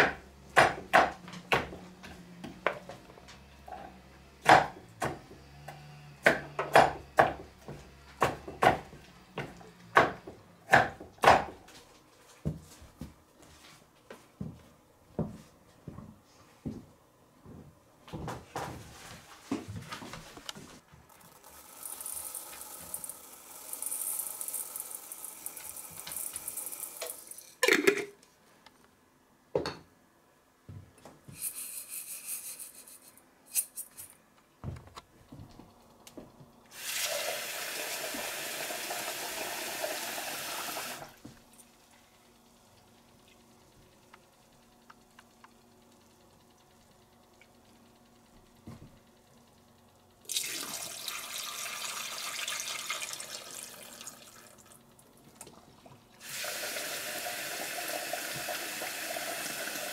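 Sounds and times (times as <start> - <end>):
pot knocking and clattering: 27.6 - 28.2.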